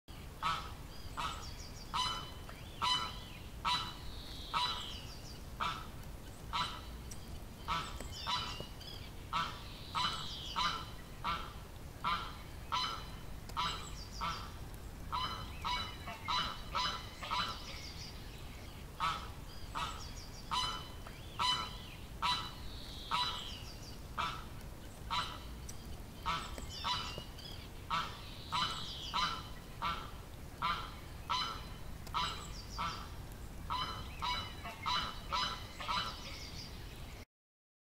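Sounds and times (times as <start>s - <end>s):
duck quacking: 0.4s - 1.4s, 5.6s - 5.9s, 9.3s - 13.0s, 15.1s - 17.7s, 19.0s - 23.4s, 25.1s - 25.4s, 27.9s - 33.0s, 33.7s - 36.2s.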